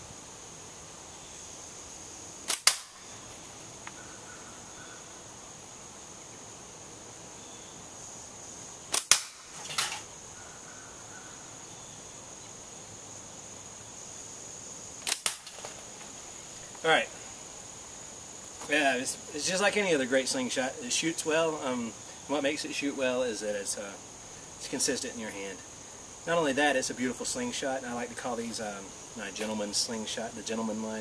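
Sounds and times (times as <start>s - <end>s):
slingshot band snap: 2.4s - 3.1s, 8.9s - 10.1s, 15.0s - 15.8s.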